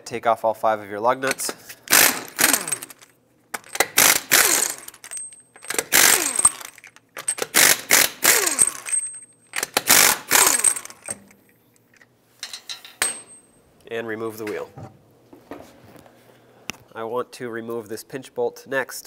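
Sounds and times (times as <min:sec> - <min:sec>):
pneumatic impact wrench hammering: 0:01.3 - 0:11.3.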